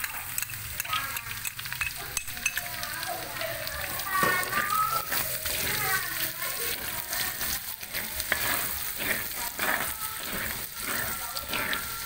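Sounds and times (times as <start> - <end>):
garlic sizzling in hot oil: 0.0 - 12.0
spatula scraping a wok: 4.0 - 12.0.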